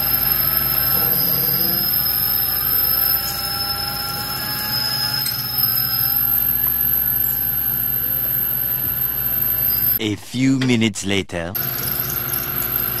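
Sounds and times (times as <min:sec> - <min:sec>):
bench mill drilling metal: 0:00.0 - 0:10.0
high constant whine: 0:00.0 - 0:13.0.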